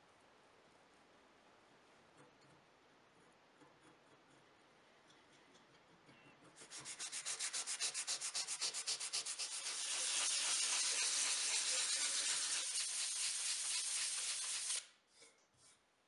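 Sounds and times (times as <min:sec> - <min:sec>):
sandpaper rubbing on wood: 0:06.6 - 0:14.8.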